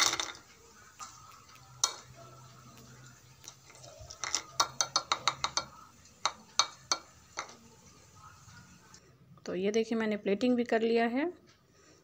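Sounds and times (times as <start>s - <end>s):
utensil clinking on ceramic plate: 0.0s - 2.2s, 3.4s - 7.6s.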